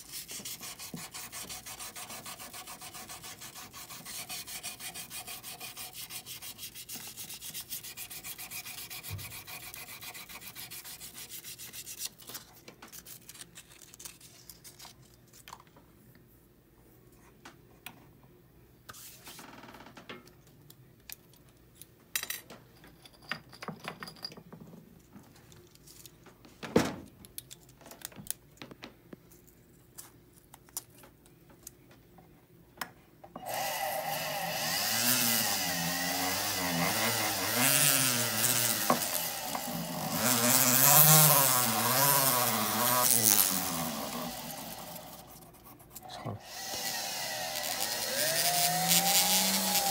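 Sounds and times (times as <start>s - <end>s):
sanding stick rubbing metal: 0.0s - 12.1s, 35.0s - 46.1s
rotary handpiece whirring: 33.4s - 45.3s, 46.4s - 49.9s.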